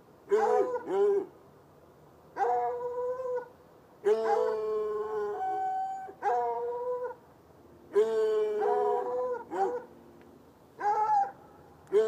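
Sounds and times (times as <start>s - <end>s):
hounds baying: 4.1s - 5.5s, 8.4s - 9.9s.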